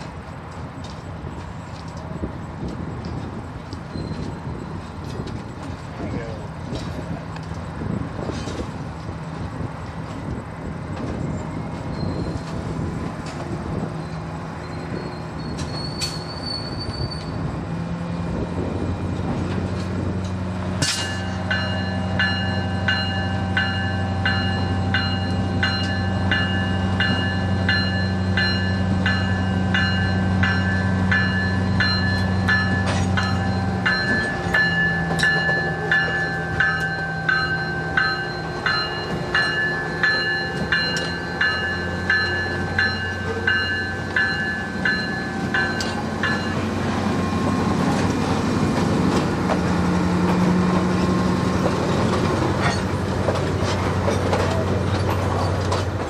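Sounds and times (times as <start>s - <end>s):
diesel locomotive engine drone: 0.0s - 56.0s
locomotive bell ringing: 20.8s - 48.0s.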